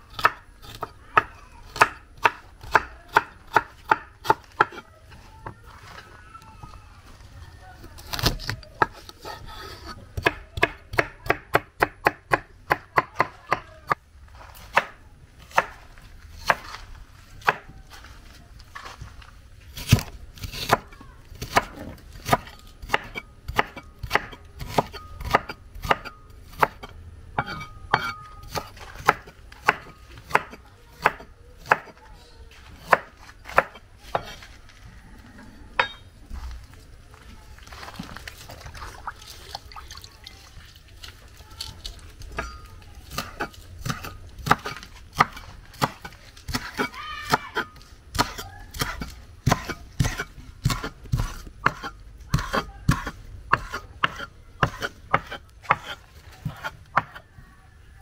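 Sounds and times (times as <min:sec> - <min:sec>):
knife chopping food: 0:43.1 - 0:57.2.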